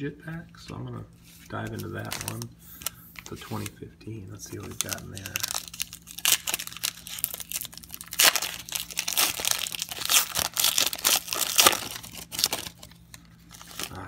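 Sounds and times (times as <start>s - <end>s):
foil wrapper tearing and crinkling: 1.7s - 3.7s, 4.5s - 14.0s.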